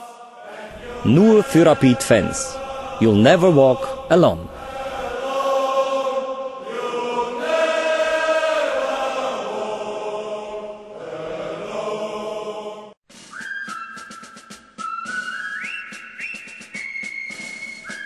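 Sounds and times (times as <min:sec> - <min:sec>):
choir singing held chords: 0:00.0 - 0:13.0
whistle-like tune: 0:13.2 - 0:18.0.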